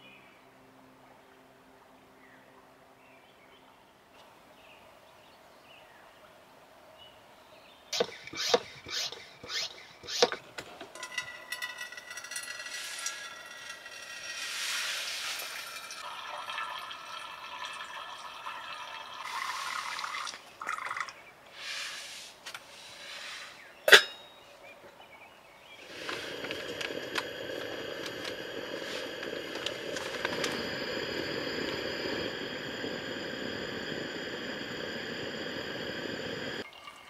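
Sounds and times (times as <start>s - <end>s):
water pouring into metal cup: 11.0s - 21.2s, 25.8s - 37.0s.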